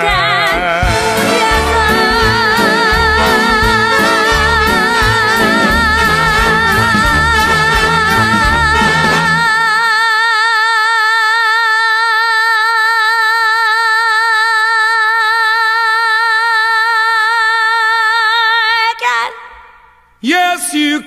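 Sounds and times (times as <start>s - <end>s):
band accompaniment: 0.0s - 9.8s.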